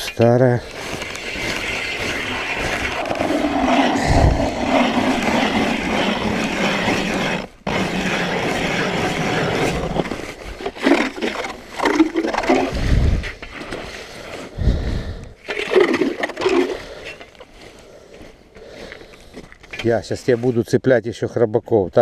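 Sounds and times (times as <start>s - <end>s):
ice auger grinding through ice: 0.5s - 14.5s, 15.4s - 17.5s
auger knocks and scrapes in slush: 0.8s - 13.9s.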